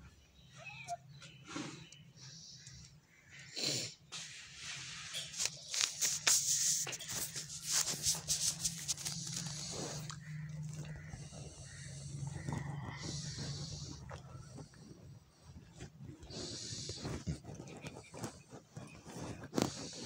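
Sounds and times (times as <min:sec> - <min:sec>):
blanket rustling and scraping: 0:04.2 - 0:10.0
steady low hum: 0:05.8 - 0:18.3.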